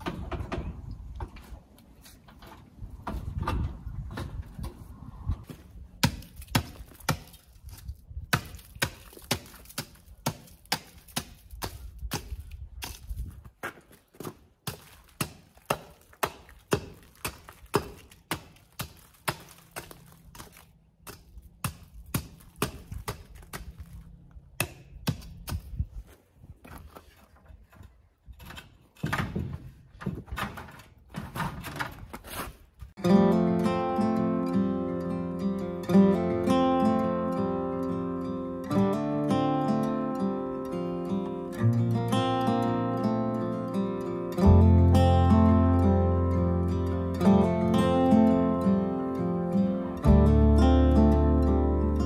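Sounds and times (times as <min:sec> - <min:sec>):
hatchet chopping ice: 0:06.0 - 0:13.1, 0:14.2 - 0:24.0, 0:24.6 - 0:25.8.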